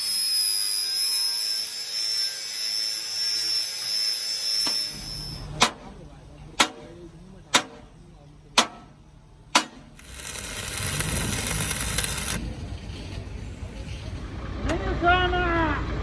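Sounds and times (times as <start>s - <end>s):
sharp metal knocks: 7.5s - 7.8s, 8.6s - 8.9s, 9.5s - 9.9s
arc welding crackle: 9.6s - 12.5s.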